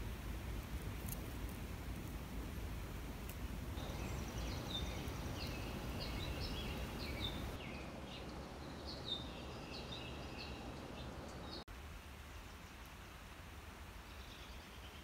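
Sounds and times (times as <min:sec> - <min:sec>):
low background noise: 0:00.0 - 0:15.0
songbirds chirping and trilling: 0:03.8 - 0:11.7.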